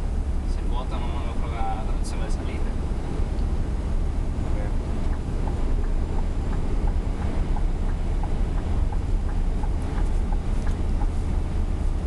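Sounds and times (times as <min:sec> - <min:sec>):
truck engine drone: 0:00.0 - 0:12.0
faint light ticks: 0:05.0 - 0:11.3.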